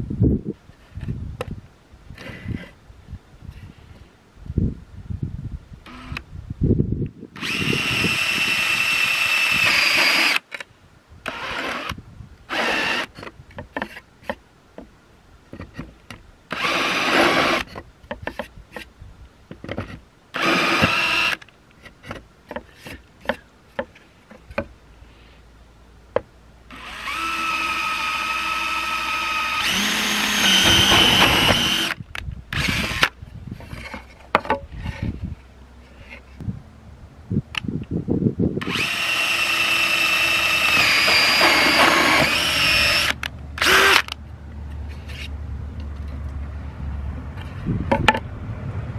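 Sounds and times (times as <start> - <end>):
cordless drill whining through board: 5.9 - 6.2, 7.4 - 10.5, 11.2 - 13.3, 16.5 - 17.7, 20.4 - 21.4, 26.7 - 33.2, 38.6 - 44.2.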